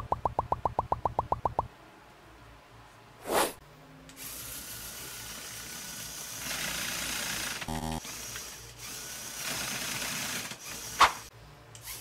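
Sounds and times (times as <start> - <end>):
toy electric motor and gears whirring: 4.1 - 12.0.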